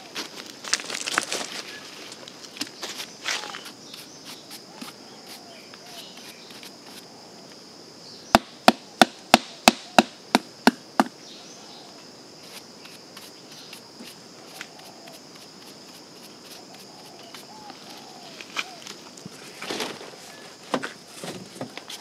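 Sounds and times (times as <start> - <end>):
insects buzzing: 0.0 - 22.0.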